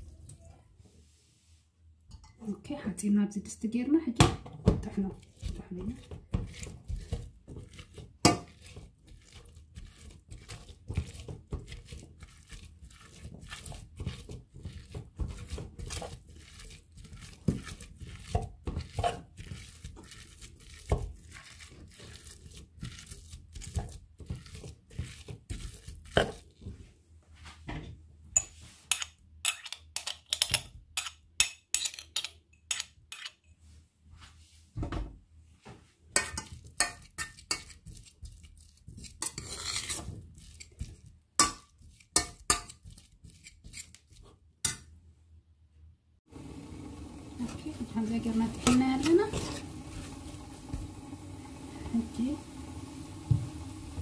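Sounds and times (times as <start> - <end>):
beans mashed in metal pot: 4.1 - 26.8, 28.4 - 33.5, 36.1 - 44.9, 47.2 - 51.1.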